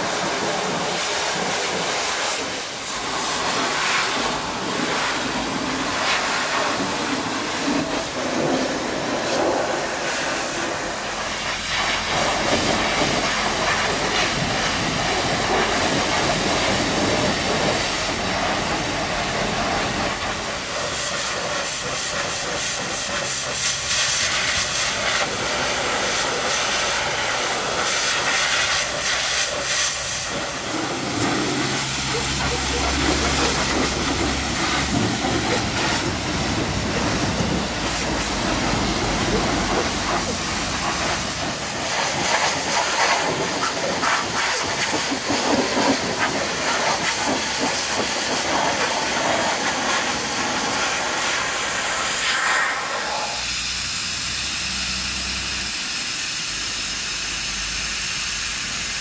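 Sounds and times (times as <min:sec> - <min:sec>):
pressure washer spraying water: 0:00.0 - 0:59.0.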